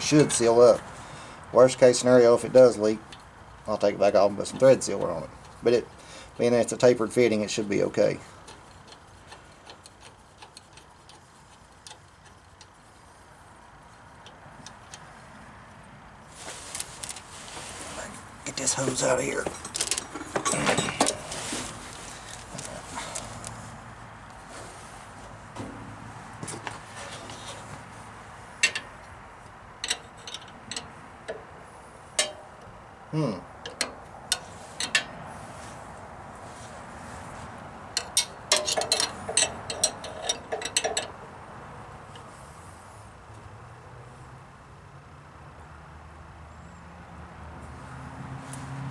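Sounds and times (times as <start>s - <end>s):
faint metal ticks: 3.0s - 3.3s, 8.4s - 12.9s, 14.2s - 15.1s, 28.6s - 31.5s, 32.2s - 32.7s, 33.6s - 35.2s, 38.0s - 41.2s
wrench clicking on metal fittings: 8.4s - 12.8s, 38.0s - 41.2s.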